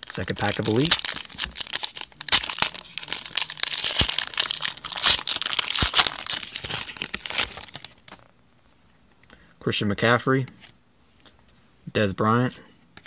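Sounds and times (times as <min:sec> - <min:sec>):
plastic wrapper crinkling: 0:00.0 - 0:08.3.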